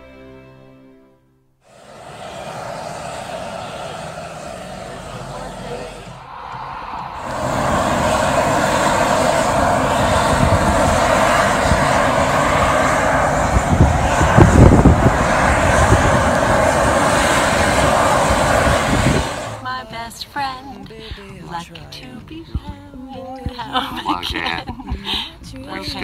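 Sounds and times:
steam vent hissing: 1.6 - 19.8
hot spring boiling: 1.7 - 6.2, 7.2 - 19.6
low rumbles: 1.7 - 20.0.

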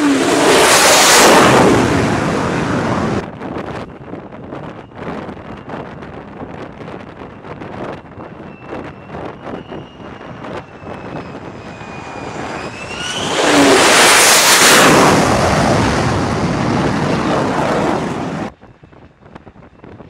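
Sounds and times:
loud jet roar: 0.0 - 3.2, 8.5 - 18.5
jet engine whine: 0.0 - 20.0.

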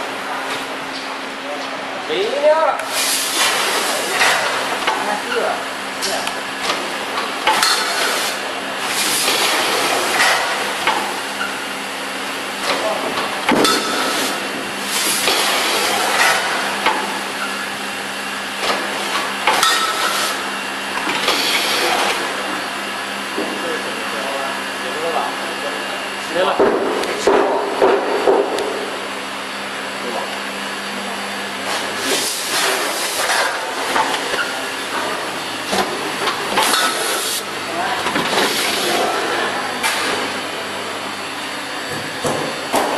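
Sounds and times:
packaging machine humming: 2.2 - 42.9.

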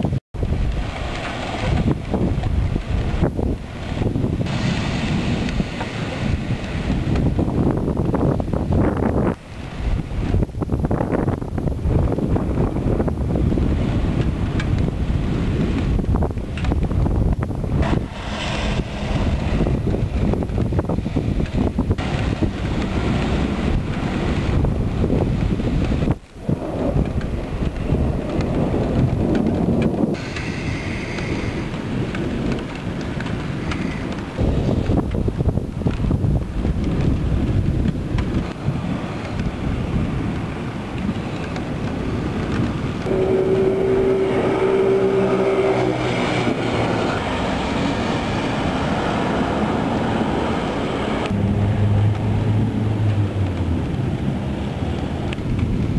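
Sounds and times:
heavy low thunder rumble: 0.0 - 55.9
rain falling: 0.0 - 55.9
wind buffeting the microphone: 0.0 - 55.9
mechanical drone: 17.7 - 21.0, 43.0 - 49.7, 50.5 - 55.7.

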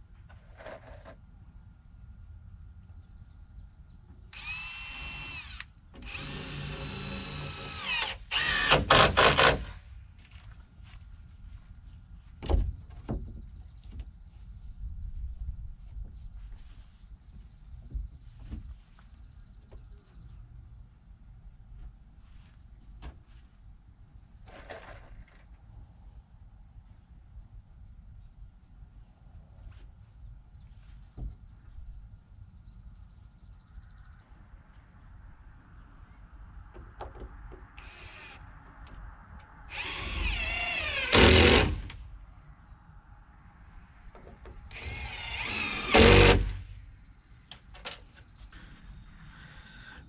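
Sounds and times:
power saw cutting wood: 39.7 - 41.8, 44.8 - 46.6.

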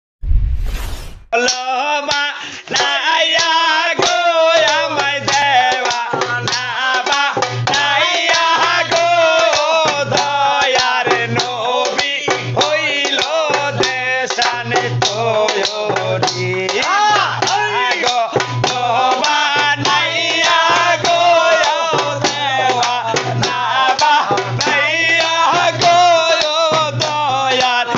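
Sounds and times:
man singing folk song: 1.4 - 27.9
sharp percussion clicks: 1.4 - 27.9.

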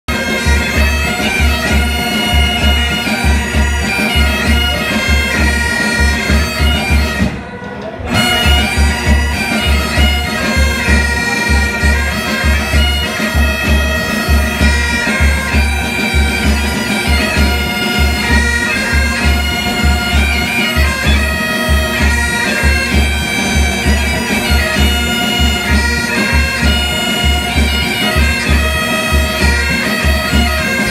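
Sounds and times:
bagpipes playing: 0.1 - 30.9.

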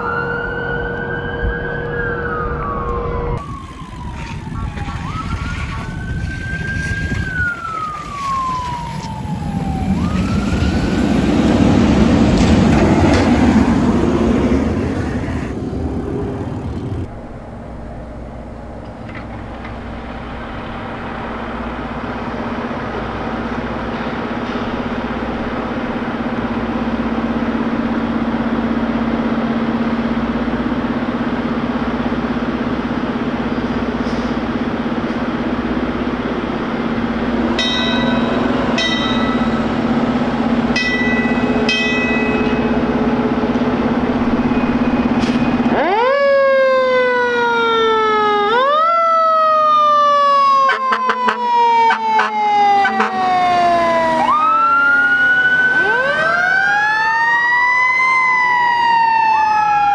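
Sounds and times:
emergency vehicle siren: 0.0 - 59.9
traffic noise: 0.0 - 59.9
diesel engine idling: 8.7 - 45.8.

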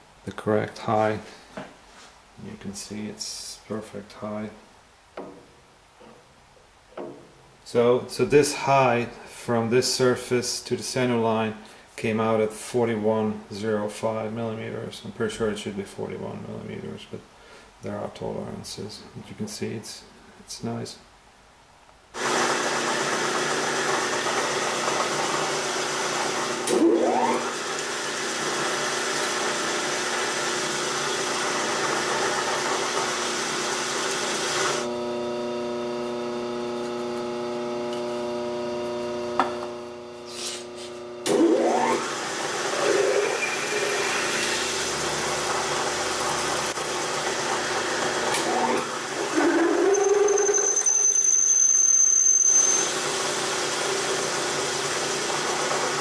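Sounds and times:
drill press motor hum: 22.2 - 51.0, 52.0 - 56.0
drill cutting metal hiss: 40.2 - 56.0
drill bit squealing: 42.7 - 45.5, 48.4 - 53.2.

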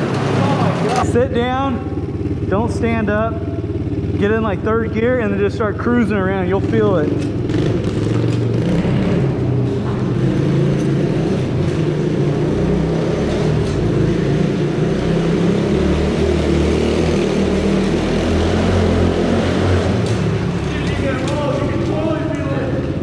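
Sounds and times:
pit bike engine running: 0.0 - 23.0.

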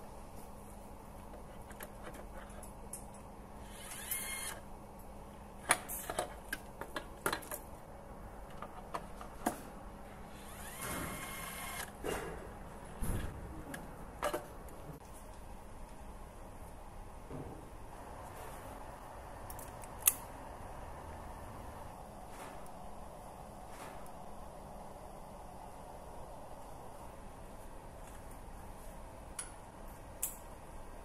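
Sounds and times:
faint steady hum: 0.0 - 31.0
clicks and knocks of tools: 1.6 - 3.3
power tool whirring: 3.6 - 4.6, 10.3 - 12.0.

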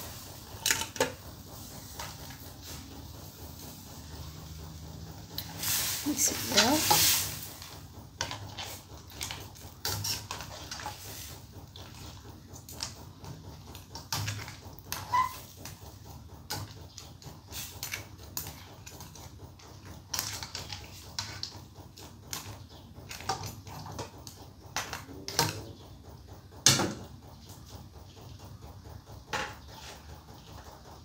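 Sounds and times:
spoon knocking and scraping pot: 8.2 - 11.1.

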